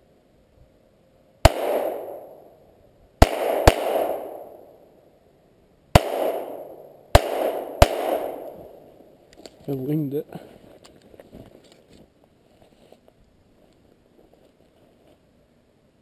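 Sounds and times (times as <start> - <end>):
pistol shots echoing: 1.4 - 2.5, 3.2 - 4.8, 6.0 - 8.9.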